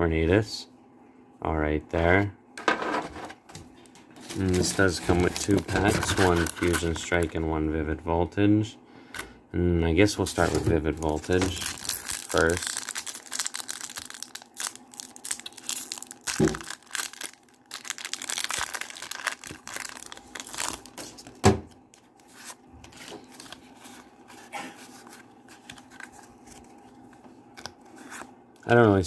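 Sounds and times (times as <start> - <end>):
cards being handled: 4.2 - 7.4, 10.3 - 29.0
foil wrapper tearing and crinkling: 4.4 - 7.3, 11.0 - 21.4.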